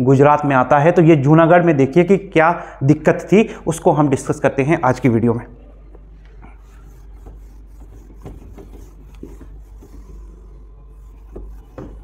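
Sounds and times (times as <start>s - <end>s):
duster rubbing on whiteboard: 6.4s - 12.0s.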